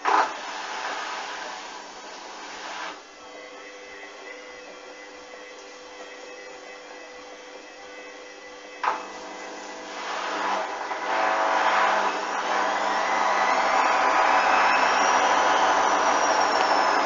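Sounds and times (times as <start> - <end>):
washing machine drum motor whining: 0.0 - 17.0.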